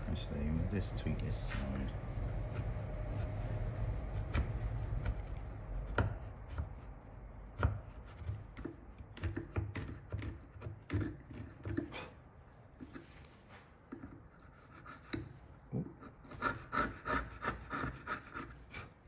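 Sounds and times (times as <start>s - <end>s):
chisel cutting wood: 2.1s - 11.9s, 13.9s - 19.0s.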